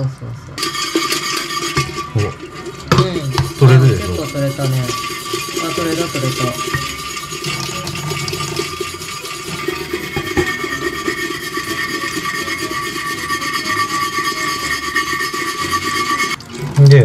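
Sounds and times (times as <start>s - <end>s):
wire brush scrubbing steel pot: 0.6s - 17.0s
tap water trickling: 14.8s - 17.0s.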